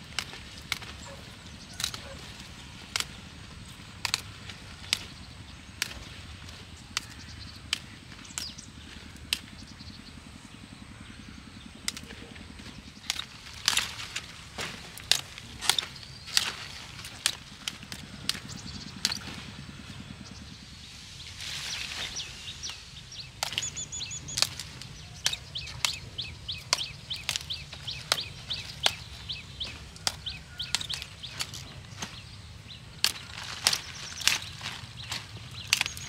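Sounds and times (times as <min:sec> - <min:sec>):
broccoli stalks snapping: 0:00.0 - 0:09.6, 0:11.9 - 0:19.4, 0:22.7 - 0:32.2, 0:33.0 - 0:36.0
birds chirping: 0:00.0 - 0:36.0.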